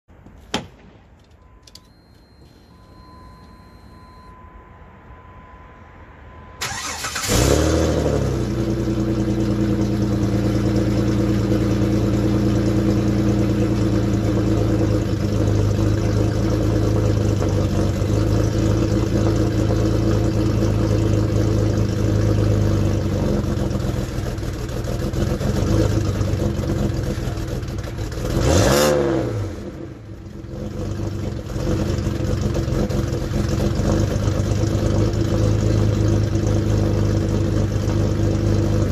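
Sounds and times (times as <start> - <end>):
car engine idling: 2.7 - 38.9
engine revving: 6.6 - 24.0, 28.0 - 38.9.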